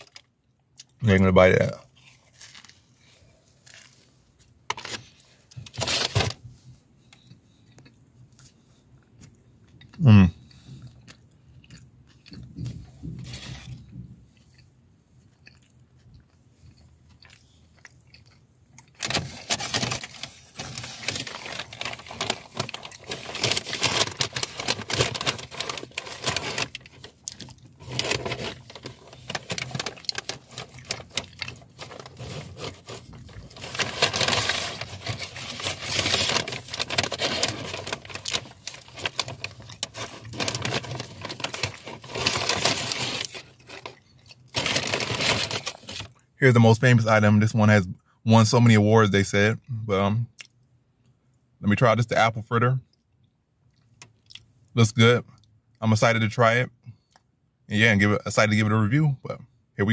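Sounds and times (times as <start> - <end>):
food packaging rustling: 2.0 - 6.4, 18.8 - 46.2.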